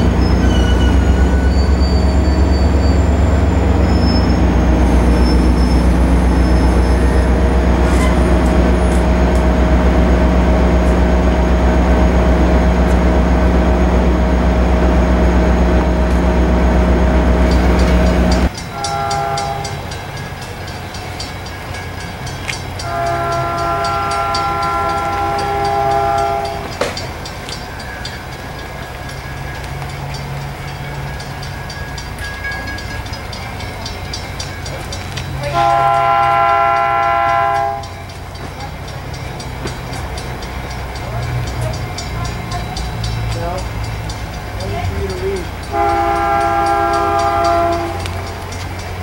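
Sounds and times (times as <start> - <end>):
diesel locomotive idling: 0.0 - 49.0
distant approaching train: 0.0 - 49.0
train horn blasts: 18.7 - 19.9, 22.8 - 26.8, 35.4 - 37.9, 45.6 - 48.2.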